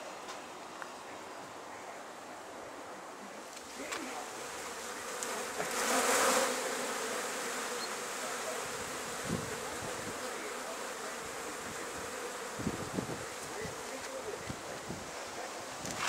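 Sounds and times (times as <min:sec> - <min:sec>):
flies buzzing: 0:03.2 - 0:16.0.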